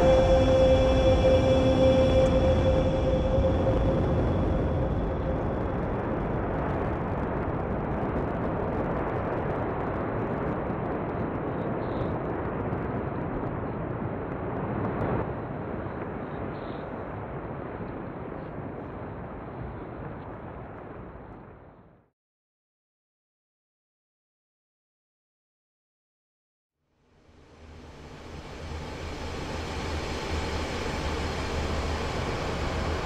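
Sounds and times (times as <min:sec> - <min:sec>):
deep rumbling blast roar: 0:00.0 - 0:20.8, 0:27.5 - 0:33.0.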